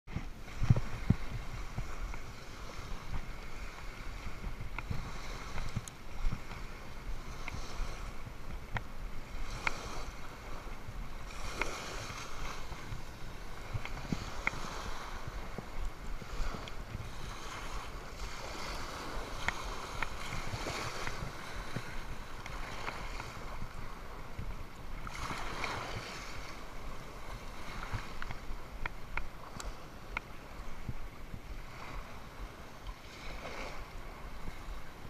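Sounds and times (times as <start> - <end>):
wind rumble on microphone: 0.0 - 35.0
small waves washing on sandy shore: 0.1 - 35.0
faint clicks: 4.7 - 6.6, 13.7 - 14.6, 27.9 - 30.3.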